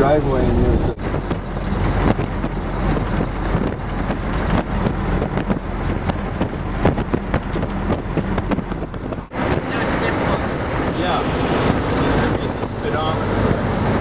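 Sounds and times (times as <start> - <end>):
car engine hum: 0.0 - 14.0
road noise: 0.0 - 14.0.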